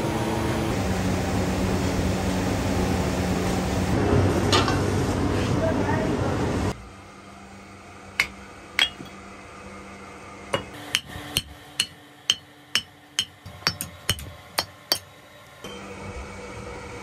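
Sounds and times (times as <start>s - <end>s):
hammer striking metal: 8.2s - 9.2s, 10.5s - 15.8s.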